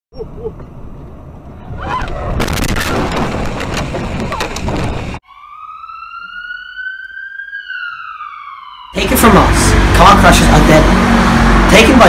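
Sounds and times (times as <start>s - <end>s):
car crash cracks and clatters: 2.4s - 5.1s
emergency vehicle siren wailing: 5.2s - 12.0s.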